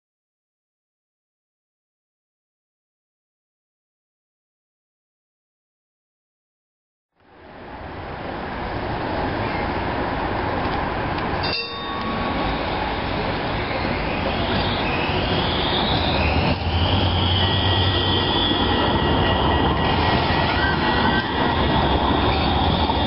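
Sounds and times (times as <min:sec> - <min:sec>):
tram passing on rails: 0:07.2 - 0:23.0
tram motor whine: 0:10.6 - 0:23.0.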